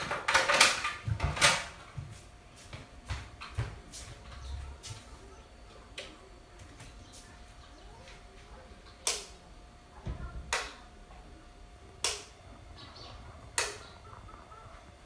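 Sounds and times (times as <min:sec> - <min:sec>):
wall light switch clicking: 0:09.0 - 0:09.3, 0:12.0 - 0:12.3, 0:13.6 - 0:13.8.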